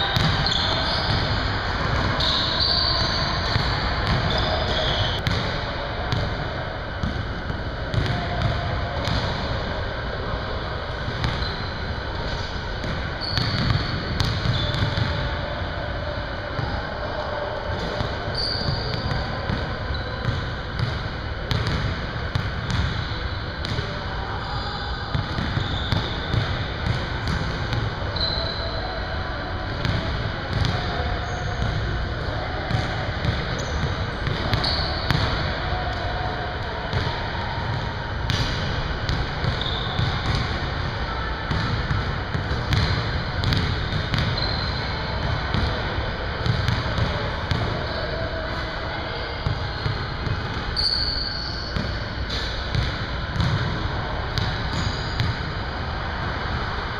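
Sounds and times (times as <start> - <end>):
sneaker squeaks: 0.0 - 5.5, 11.0 - 15.4, 17.8 - 29.1, 29.8 - 31.9, 32.6 - 36.0, 37.7 - 40.7, 41.5 - 45.8, 46.4 - 48.4, 49.4 - 53.6, 54.4 - 55.6
basketballs bouncing on wooden floor: 0.2 - 2.3, 13.3 - 15.1, 29.8 - 30.8, 41.5 - 44.5, 52.3 - 53.7.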